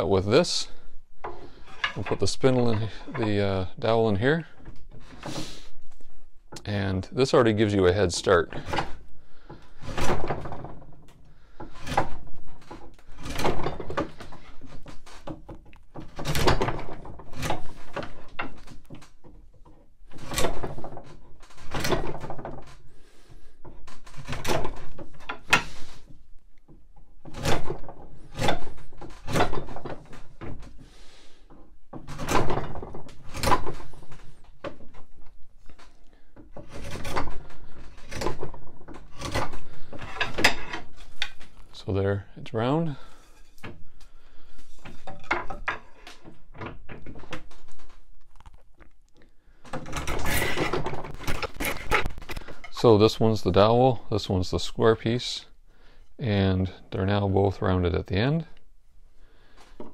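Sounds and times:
draw knife shaving wood: 36.2 - 41.2, 49.8 - 52.5.

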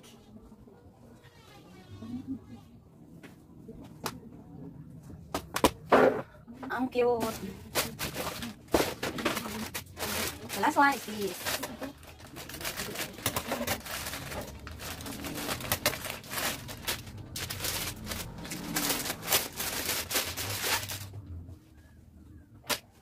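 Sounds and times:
plastic packaging crinkling: 7.2 - 21.2
scissors cutting plastic bag: 7.7 - 21.1.

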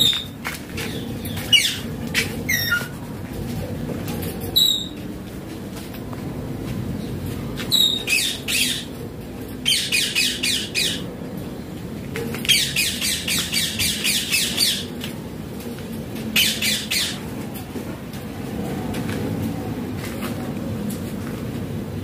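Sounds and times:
parakeet squawking: 2.5 - 2.9, 7.7 - 8.9, 9.7 - 11.0, 12.5 - 14.9, 16.4 - 17.2.

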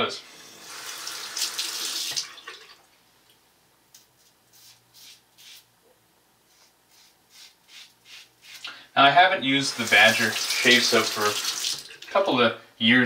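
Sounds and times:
razor scraping stubble: 6.5 - 8.7.

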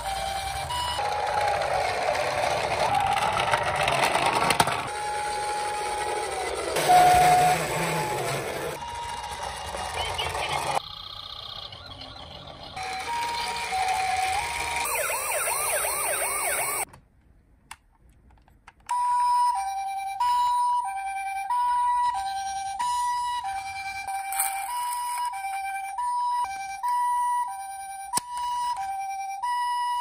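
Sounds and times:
two-note toy siren: 0.0 - 4.1, 4.9 - 16.9, 18.9 - 30.0
rising and falling siren wail: 4.9 - 16.9.

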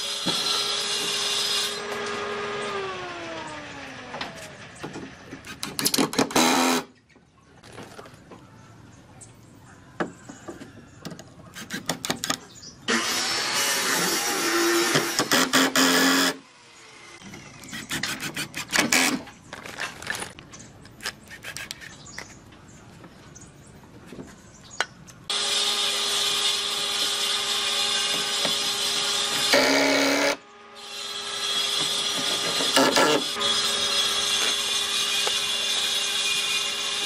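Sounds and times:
power tool humming: 12.9 - 19.2, 25.3 - 37.0.

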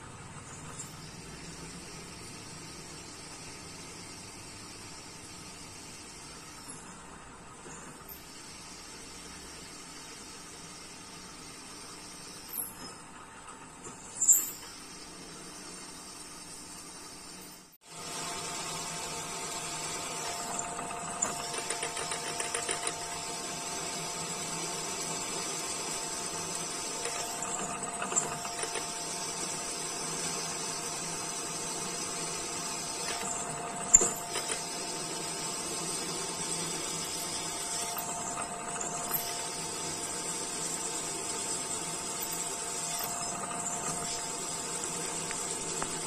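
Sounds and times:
milling machine whine: 17.9 - 46.0.

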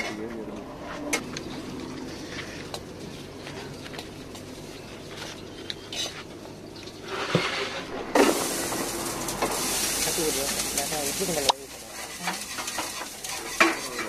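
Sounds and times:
plates and utensils clinking: 7.0 - 14.0
food sizzling on a griddle: 8.1 - 14.0.

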